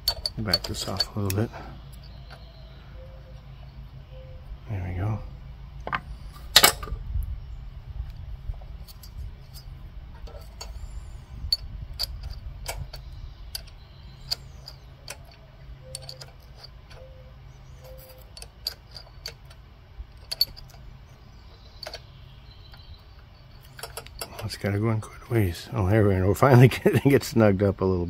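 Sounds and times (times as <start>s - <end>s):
metallic clicks of hand tools: 0.0s - 2.5s, 11.5s - 17.2s
low steady rumble: 0.0s - 28.0s.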